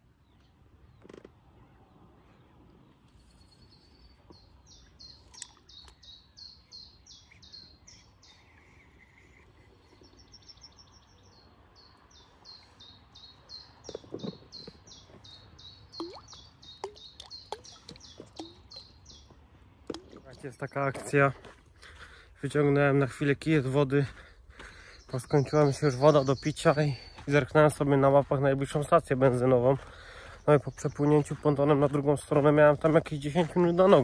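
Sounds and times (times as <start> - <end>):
songbird chirping: 0.0 - 34.0
small splashes on water: 16.0 - 19.0.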